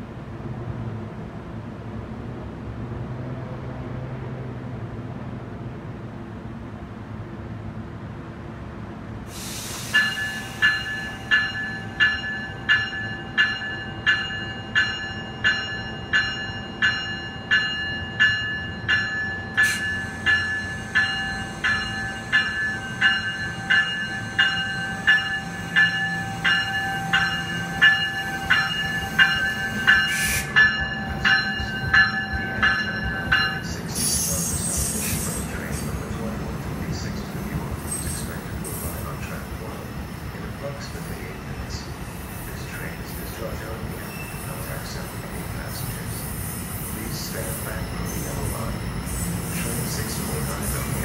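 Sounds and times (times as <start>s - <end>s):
rush of train cars passing: 0.0s - 51.0s
locomotive bell ringing: 9.8s - 39.7s.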